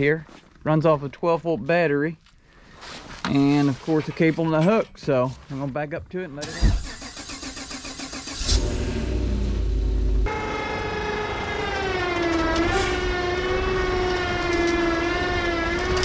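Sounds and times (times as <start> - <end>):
vehicle engine rumble: 6.4 - 16.0
electric winch motor whining: 10.2 - 16.0.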